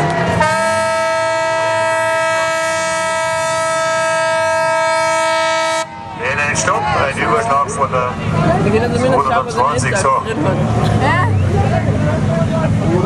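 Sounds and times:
horn long blast: 0:00.0 - 0:06.2.

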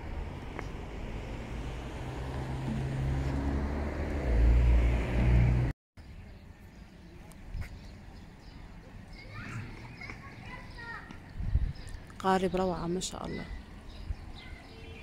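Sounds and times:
vehicle engine hum passing: 0:00.0 - 0:07.3.

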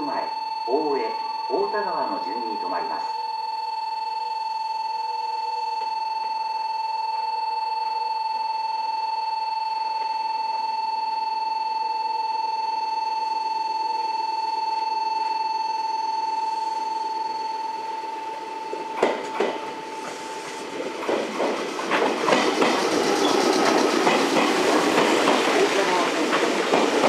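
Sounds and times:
electronic warning buzzer tone: 0:00.0 - 0:21.0, 0:22.2 - 0:26.1
approaching train rumble: 0:18.3 - 0:27.0.

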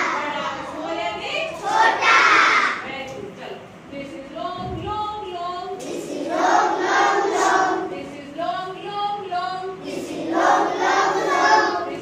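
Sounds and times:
children chanting a rhyme: 0:00.0 - 0:02.8, 0:05.7 - 0:08.0, 0:09.7 - 0:12.0
woman singing: 0:03.9 - 0:05.8, 0:07.8 - 0:09.8.

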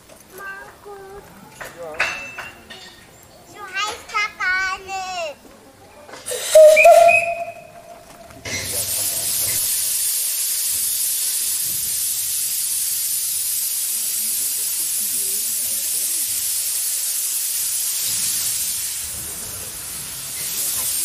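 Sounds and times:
steam locomotive hissing: 0:06.1 - 0:21.0
steam whistle: 0:06.3 - 0:08.1.

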